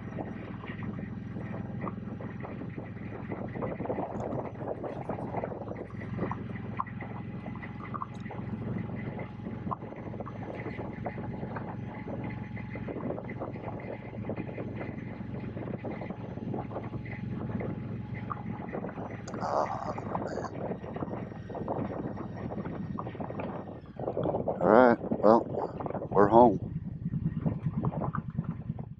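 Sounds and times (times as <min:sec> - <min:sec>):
motorcycle engine running: 0:00.0 - 0:28.9
wind noise on microphone: 0:00.0 - 0:28.9.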